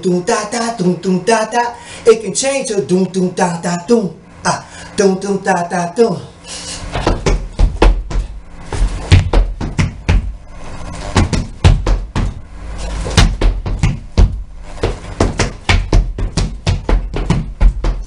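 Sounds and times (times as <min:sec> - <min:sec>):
sneakers stomping on wooden floor: 0:06.9 - 0:10.4, 0:11.1 - 0:12.4, 0:13.0 - 0:18.0.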